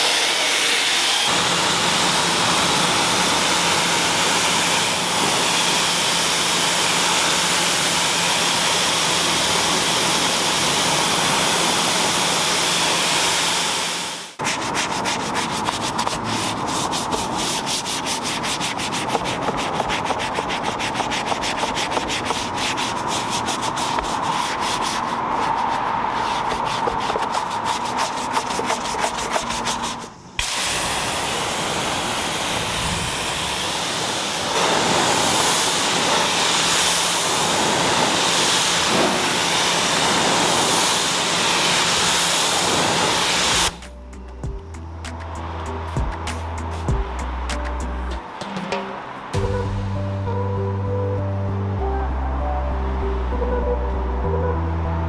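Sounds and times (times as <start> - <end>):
pressure washer spray hissing: 0.0 - 43.9
brush scrubbing wet mat: 14.4 - 30.2.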